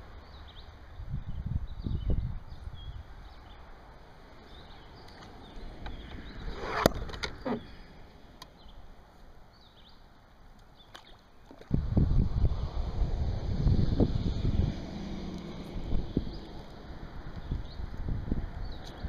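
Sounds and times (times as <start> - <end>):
small birds chirping: 0.2 - 3.7, 4.3 - 8.9, 9.5 - 11.4, 17.3 - 19.0.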